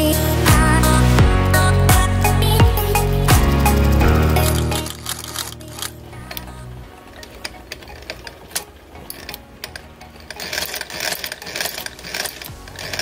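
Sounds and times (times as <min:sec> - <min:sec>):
sewing machine clicks and knocks: 0:07.2 - 0:13.0.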